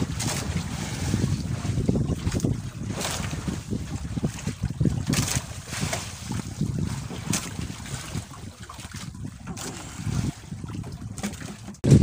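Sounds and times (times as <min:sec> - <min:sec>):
sea water washing around boat: 0:00.0 - 0:12.0
wind buffeting microphone: 0:00.0 - 0:12.0.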